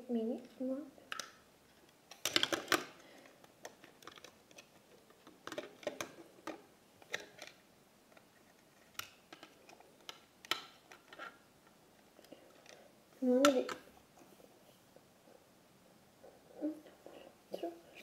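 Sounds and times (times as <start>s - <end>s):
plastic toy pieces clicking: 2.1s - 2.9s, 3.6s - 7.6s.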